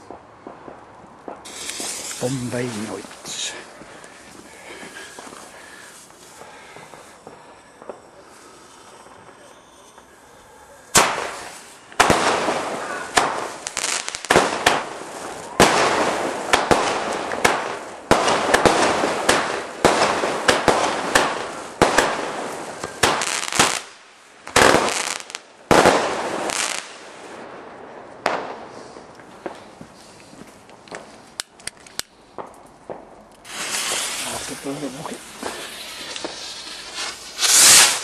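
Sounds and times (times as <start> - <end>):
firework shots crackling: 0.0 - 10.2, 10.8 - 27.5, 30.7 - 38.0
firework bang: 10.9 - 23.8, 32.4 - 38.0.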